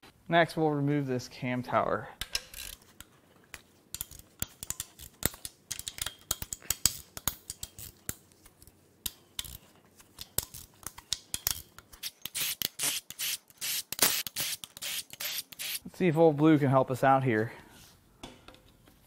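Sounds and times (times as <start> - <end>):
hand ratchet clicking: 3.9 - 8.2.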